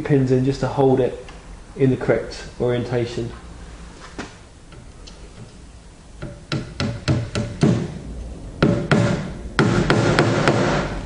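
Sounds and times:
hammer tapping pins into wood: 6.2s - 7.8s.

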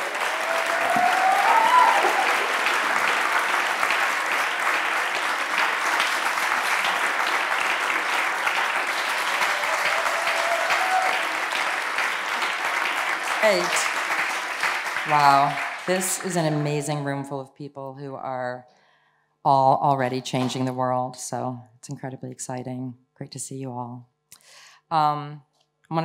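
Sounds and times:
large audience applauding: 0.0s - 17.2s.

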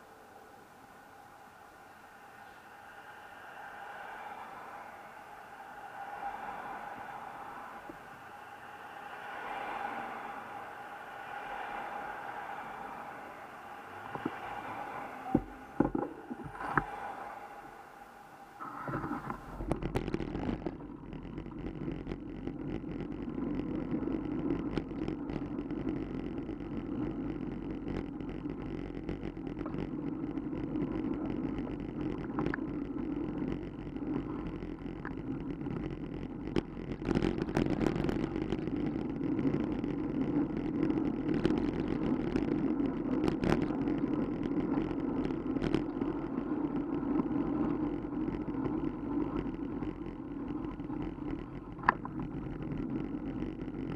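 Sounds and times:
traffic: 0.0s - 19.7s
wind and road rumble: 0.0s - 53.9s.

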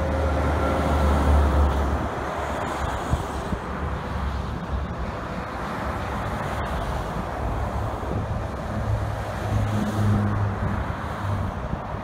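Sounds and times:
freeway traffic: 0.0s - 12.0s.

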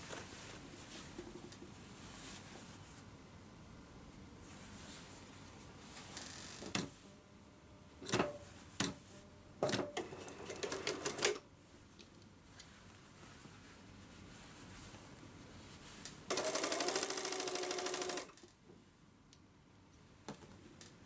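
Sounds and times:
sewing machine stitching: 9.6s - 11.4s, 16.3s - 18.4s.

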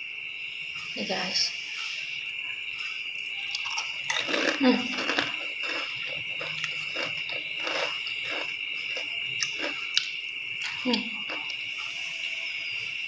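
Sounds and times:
person chewing food: 3.1s - 11.9s.

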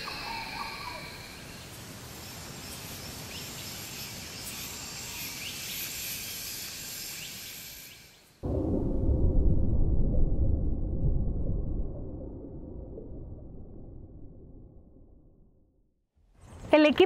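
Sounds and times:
insects trilling: 0.0s - 8.4s.

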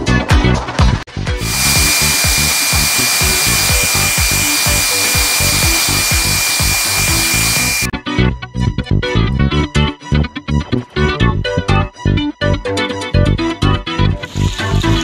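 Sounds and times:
background music: 0.0s - 15.0s
hair dryer blowing: 1.4s - 7.9s.

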